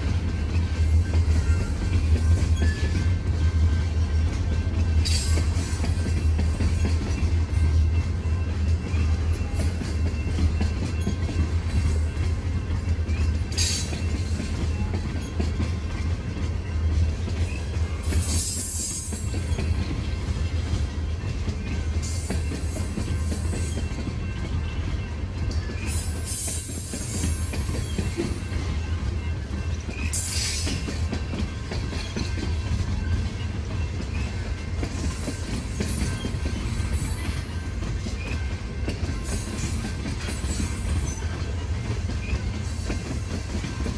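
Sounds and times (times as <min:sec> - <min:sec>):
train wheels rumbling on rail: 0:00.0 - 0:43.9
high-pitched wheel squeals: 0:02.6 - 0:03.1.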